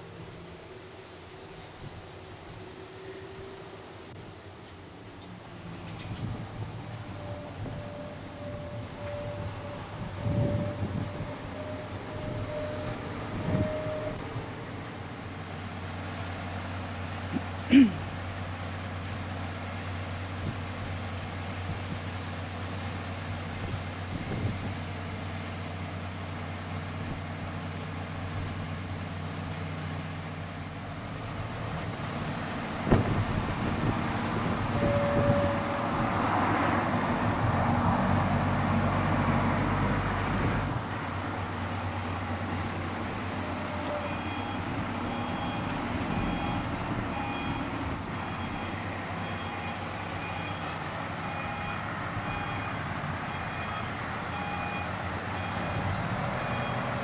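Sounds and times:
reversing alarm beeping: 0:07.2 - 0:14.2, 0:43.0 - 0:57.0.

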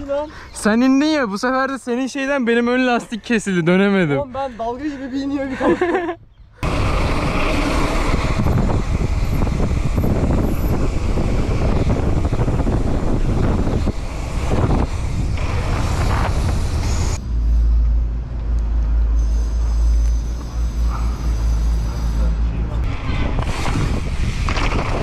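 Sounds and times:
steady low rumble: 0:06.6 - 0:21.4
bike rattling over cobblestones: 0:19.8 - 0:25.0.

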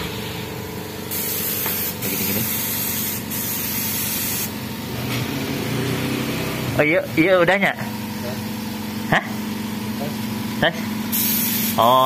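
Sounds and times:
spray gun hissing: 0:01.1 - 0:04.6, 0:11.1 - 0:12.0.

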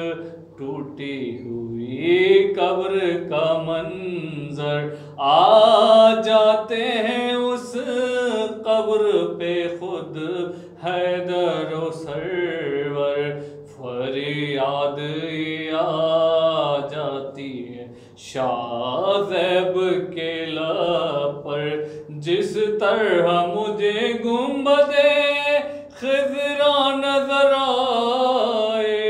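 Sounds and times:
man chanting: 0:00.0 - 0:29.0.

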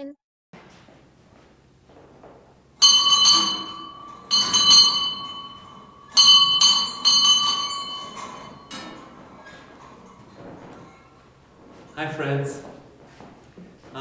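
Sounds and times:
bell ringing: 0:02.8 - 0:10.2.

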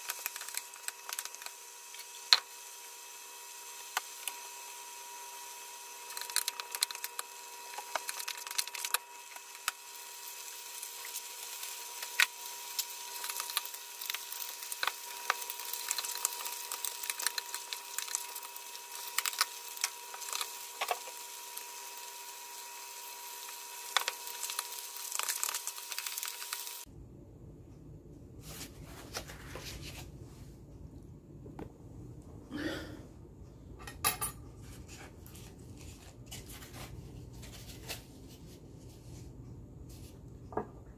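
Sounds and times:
meat sizzling in a saucepan: 0:00.0 - 0:26.9.

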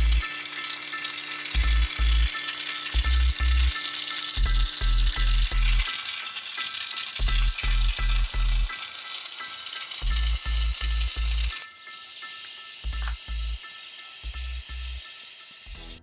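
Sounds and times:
plasma torch hissing: 0:00.0 - 0:16.0
electronic music with heavy bass: 0:10.1 - 0:11.6, 0:12.8 - 0:13.6.

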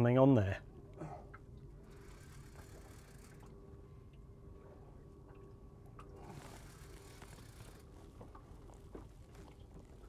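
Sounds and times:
low steady hum and hiss: 0:00.0 - 0:10.0
fishing reel clicking: 0:01.9 - 0:03.5, 0:06.4 - 0:07.8.

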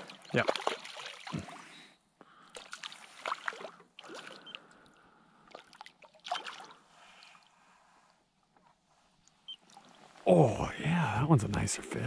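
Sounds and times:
fish splashing in water: 0:00.0 - 0:01.6, 0:02.6 - 0:04.6, 0:05.4 - 0:06.8
light water noise: 0:00.0 - 0:10.6.

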